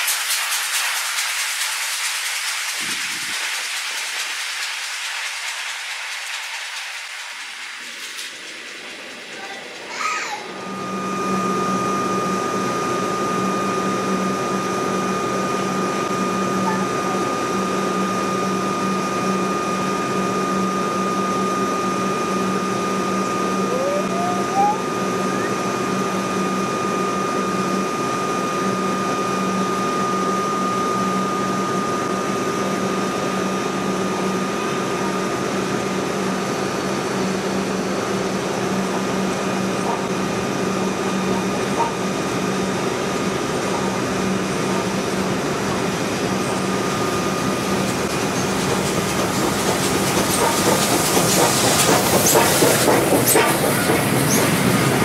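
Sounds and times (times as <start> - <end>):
wheel clatter over rails: 0.0 - 10.6, 47.8 - 55.0
electric train humming: 0.0 - 55.0
steam locomotive rolling in: 0.0 - 55.0.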